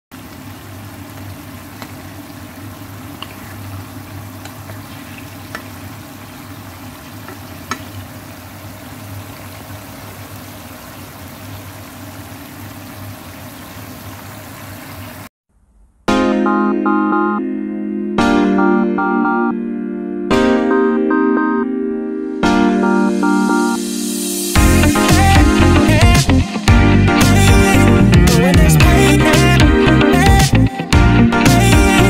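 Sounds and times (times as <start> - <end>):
food sizzling in a wok: 24.1 - 24.5.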